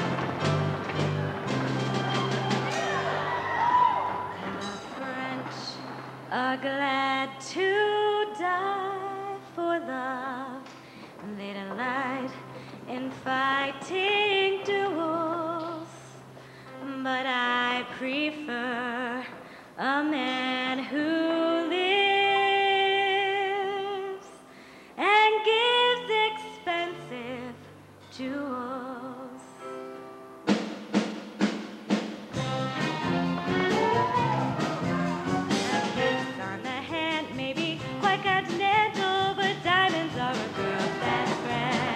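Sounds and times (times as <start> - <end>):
live band playing: 0.0 - 5.0, 30.5 - 41.9
woman singing with vibrato: 2.8 - 24.4, 25.0 - 29.4, 35.5 - 41.9.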